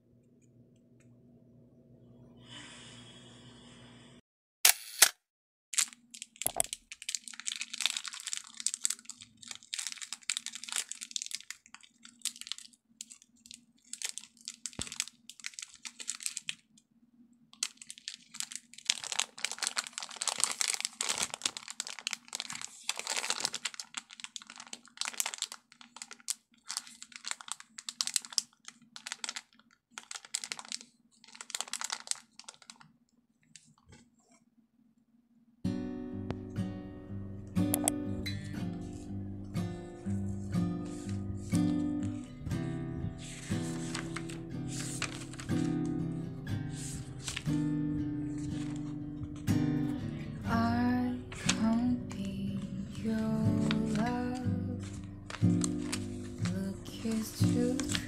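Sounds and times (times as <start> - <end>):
plastic candy bag crinkling: 5.8 - 16.8, 17.5 - 34.0, 40.0 - 42.4, 43.1 - 49.7, 50.3 - 58.0.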